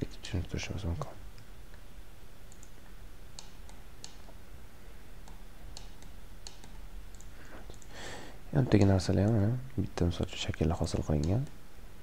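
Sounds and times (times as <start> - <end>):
low background hum: 0.0 - 12.0
computer mouse clicks: 2.5 - 2.8, 3.4 - 4.4, 5.2 - 7.9
keyboard clicks: 2.5 - 2.8, 5.2 - 7.9.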